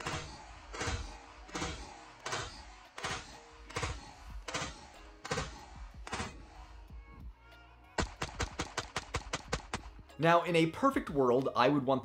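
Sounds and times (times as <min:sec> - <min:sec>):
pistol shots: 0:00.0 - 0:06.5, 0:08.0 - 0:09.9.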